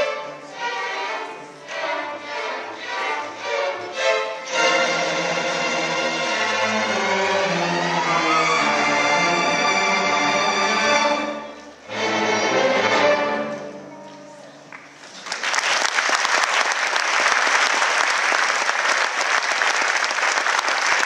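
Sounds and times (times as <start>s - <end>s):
string orchestra playing chords: 0.0s - 14.7s
audience applauding: 14.7s - 21.0s.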